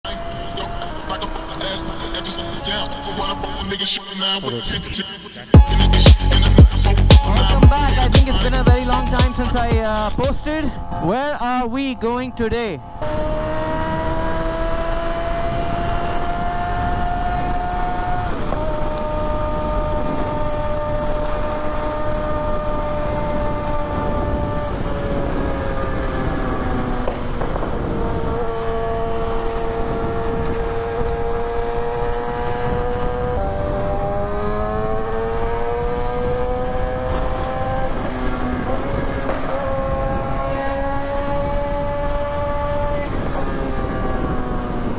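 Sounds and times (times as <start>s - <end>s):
motorcycle engine running: 5.6s - 44.9s
wind rushing over microphone: 9.6s - 44.9s.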